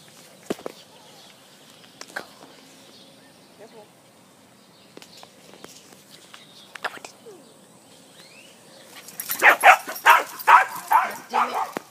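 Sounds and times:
dogs barking: 9.0 - 11.9.

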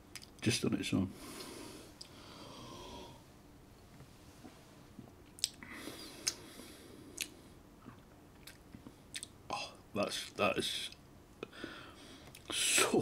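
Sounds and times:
lip smacks and tongue clicks: 5.3 - 5.6, 7.2 - 9.3.

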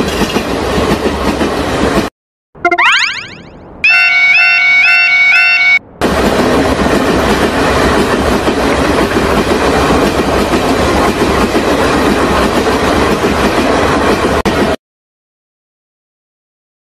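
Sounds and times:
train wheels on rails: 0.0 - 2.1, 6.0 - 14.8.

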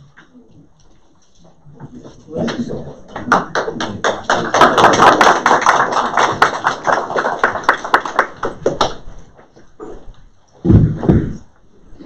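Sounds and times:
people applauding: 2.4 - 9.2.

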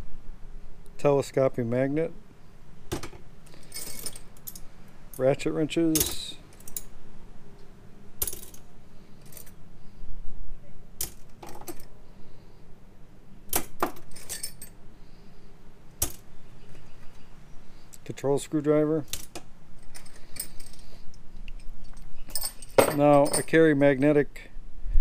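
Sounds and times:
metal tools clinking: 3.5 - 6.9, 14.0 - 14.8, 19.0 - 20.9, 21.6 - 23.7.

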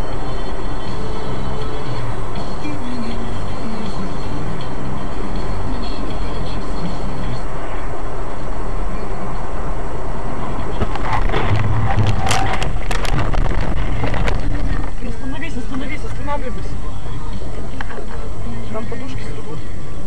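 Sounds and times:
car road and engine noise: 0.0 - 20.0
vehicle collision bangs and crunches: 10.7 - 15.0.

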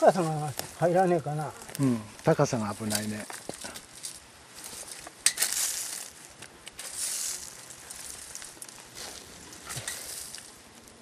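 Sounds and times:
hands digging in leaf litter: 0.0 - 11.0.

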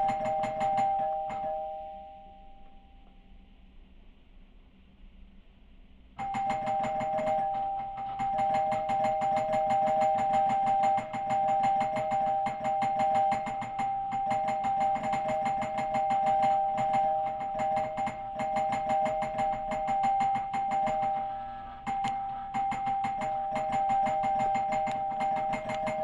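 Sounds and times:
doorbell two-tone chime: 0.0 - 2.9, 6.2 - 26.0
doorbell button clicking: 0.2 - 2.8.

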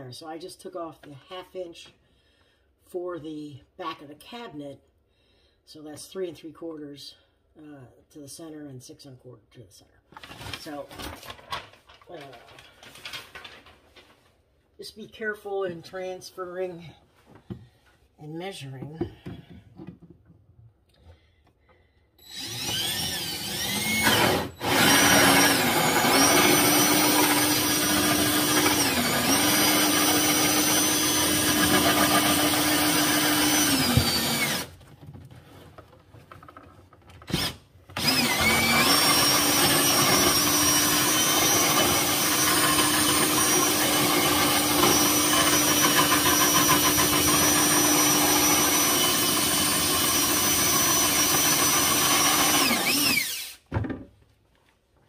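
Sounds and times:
cordless drill with hole saw: 22.2 - 34.8, 37.3 - 53.7.

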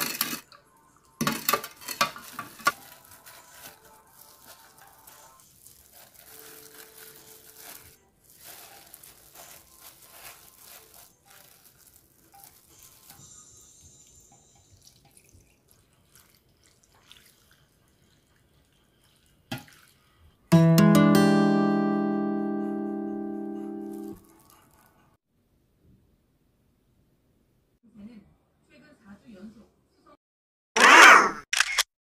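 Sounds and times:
stems rustling and tapping: 1.2 - 13.2
brine trickling and dripping: 14.1 - 20.4.

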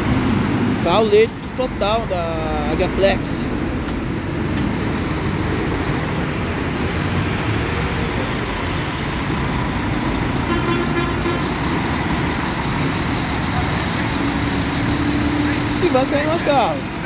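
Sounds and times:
heavy road traffic: 0.0 - 17.0
vehicle horn: 10.5 - 11.7.

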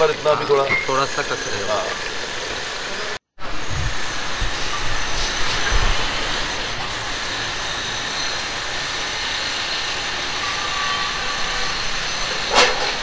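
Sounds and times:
gas burner roaring: 0.0 - 13.0.

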